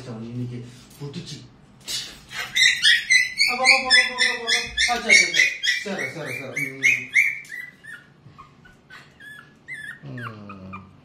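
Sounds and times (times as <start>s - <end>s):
puppy yelping: 2.3s - 11.0s.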